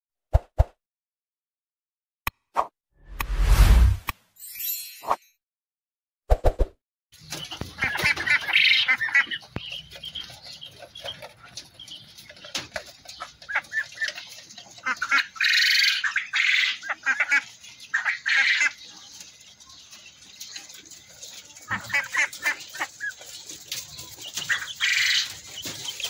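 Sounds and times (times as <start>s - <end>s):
poultry calling: 7.3s - 19.1s, 21.5s - 26.0s.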